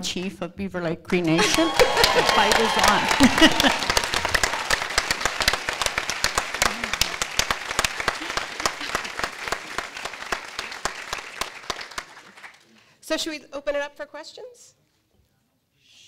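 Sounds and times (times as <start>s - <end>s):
audience applauding: 1.4s - 12.9s.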